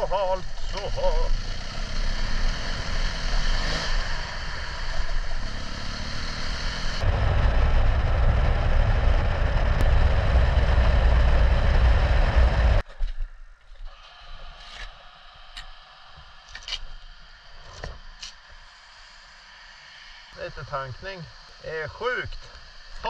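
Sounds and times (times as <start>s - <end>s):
motorcycle engine running: 0.0s - 12.9s
wind noise: 3.4s - 13.2s.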